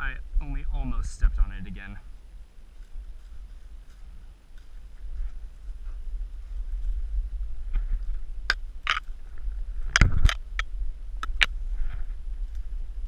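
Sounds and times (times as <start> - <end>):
steady low rumble: 0.0 - 13.0
scrapes and snaps on tree bark: 9.9 - 11.6.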